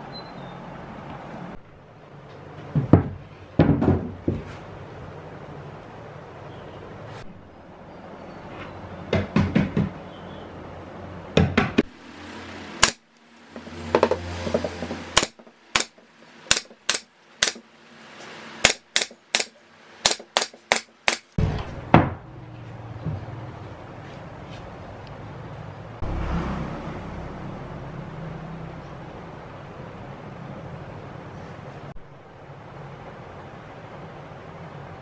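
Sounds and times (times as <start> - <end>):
wooden panels knocking: 2.7 - 4.6, 9.1 - 10.0
nail gun firing: 12.8 - 13.0, 15.2 - 17.6, 18.6 - 21.4.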